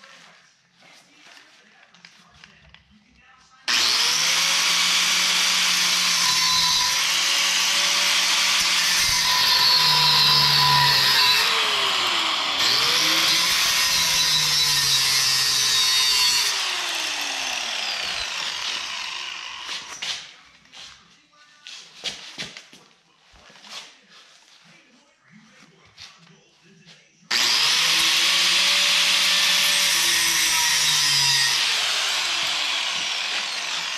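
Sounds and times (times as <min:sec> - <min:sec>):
angle grinder cutting steel: 0:03.7 - 0:20.2, 0:27.3 - 0:33.9.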